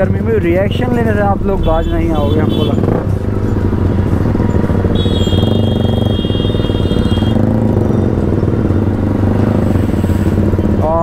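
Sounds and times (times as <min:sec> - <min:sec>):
motorcycle engines idling: 0:00.0 - 0:11.0
vehicle horn: 0:01.6 - 0:02.9, 0:04.9 - 0:07.5.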